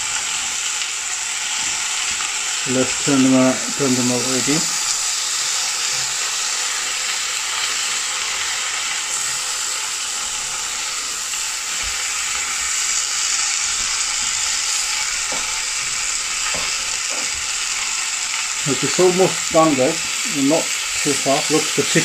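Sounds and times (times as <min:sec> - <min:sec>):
meat sizzling in grill pan: 0:00.0 - 0:22.0.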